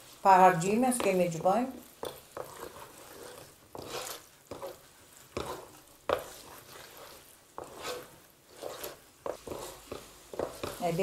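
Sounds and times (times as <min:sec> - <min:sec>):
wooden spoon scraping metal bowl: 0:00.0 - 0:11.0.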